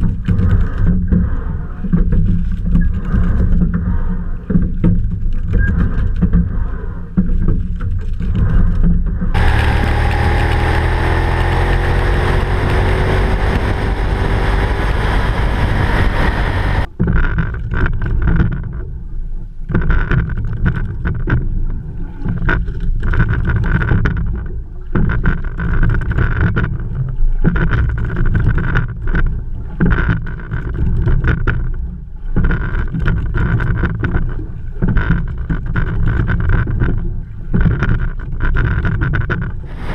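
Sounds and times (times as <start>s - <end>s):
wind buffeting microphone: 0.0s - 17.1s, 39.6s - 39.9s
water splashing along hull: 0.0s - 39.9s.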